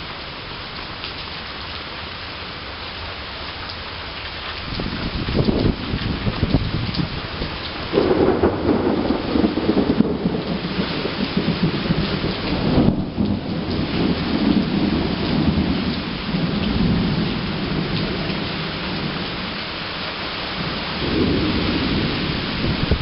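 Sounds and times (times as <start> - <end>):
heavy rain falling: 0.0 - 23.0
thunder rumbling: 4.7 - 19.8, 20.5 - 23.0.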